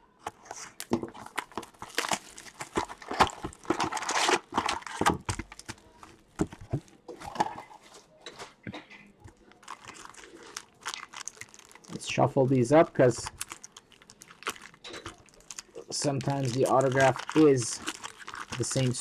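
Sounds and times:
card clicks and rustles: 0:00.2 - 0:08.0, 0:13.0 - 0:19.0
foil packs crinkling and tearing: 0:00.6 - 0:07.4, 0:09.3 - 0:19.0.

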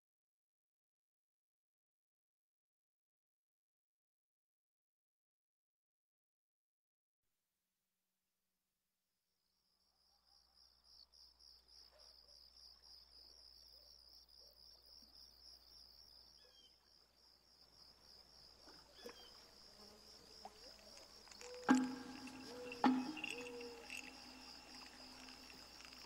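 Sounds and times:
crickets chirping: 0:09.6 - 0:26.0
light knock: 0:21.5 - 0:23.7.

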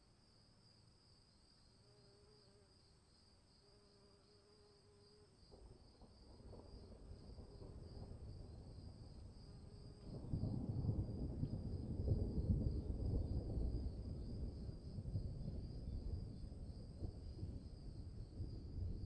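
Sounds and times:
distant thunder rumble: 0:06.2 - 0:19.0.

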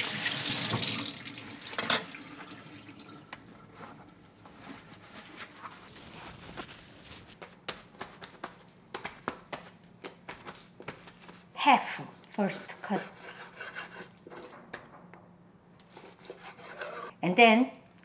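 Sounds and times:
tap water running: 0:00.0 - 0:04.3
soft rustling and light taps: 0:03.8 - 0:11.5.

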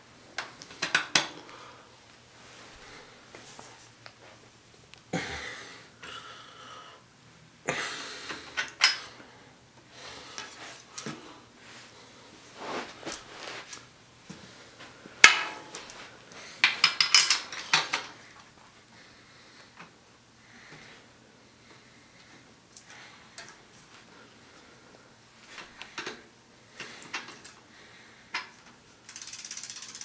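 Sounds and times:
bicycle wheel and chain clinking: 0:29.1 - 0:30.0.

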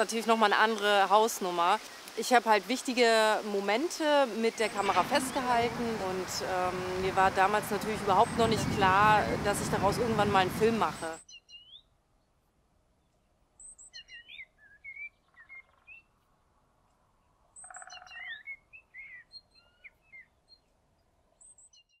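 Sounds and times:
faint birdsong: 0:00.0 - 0:22.0.

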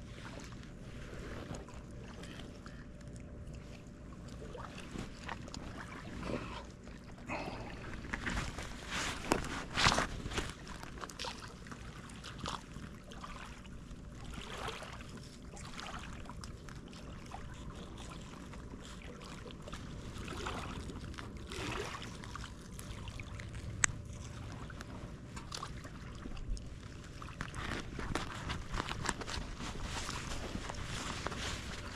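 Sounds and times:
soft rustling: 0:07.8 - 0:11.0, 0:22.6 - 0:31.9.

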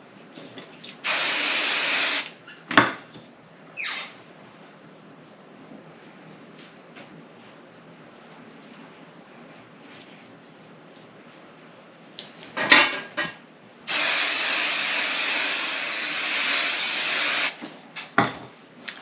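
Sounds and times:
aerosol can spraying hiss: 0:01.0 - 0:02.3, 0:13.9 - 0:17.6.

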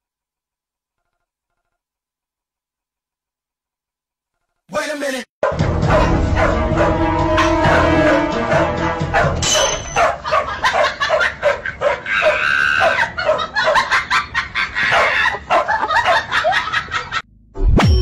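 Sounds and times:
music: 0:05.4 - 0:09.8
dog yapping: 0:09.2 - 0:13.9, 0:14.9 - 0:16.4.

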